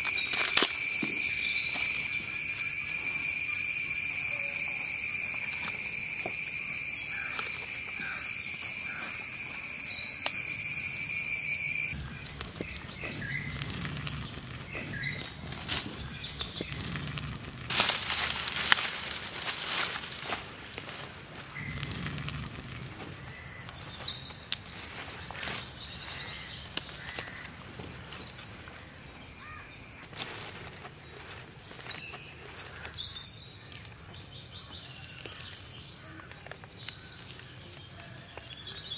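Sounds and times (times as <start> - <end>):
bird chirps: 0.0 - 13.7
small fire crackling: 0.0 - 28.8
insects buzzing at high pitch: 0.0 - 38.9
soft insect chirring: 0.0 - 38.9.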